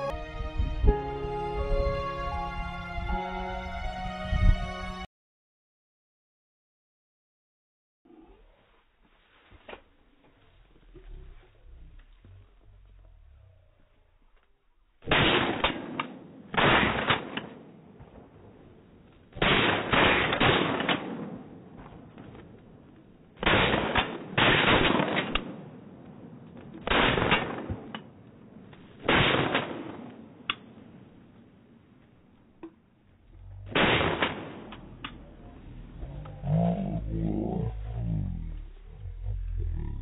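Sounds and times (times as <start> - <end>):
shotgun blasts: 15.0 - 17.8, 19.4 - 22.0, 23.4 - 25.8, 26.8 - 27.9, 29.0 - 30.3, 33.7 - 35.0.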